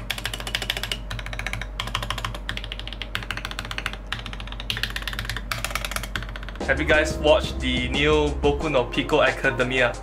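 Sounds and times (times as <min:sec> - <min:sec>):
fast mechanical keyboard typing: 0:00.0 - 0:06.8.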